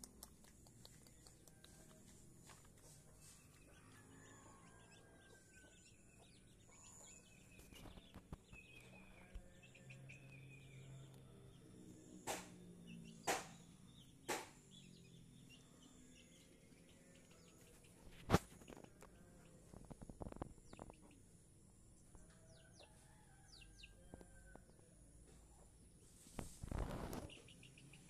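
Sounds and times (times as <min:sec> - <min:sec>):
sharp clicks: 0:00.0 - 0:01.8
faint bird chirps: 0:00.4 - 0:25.8.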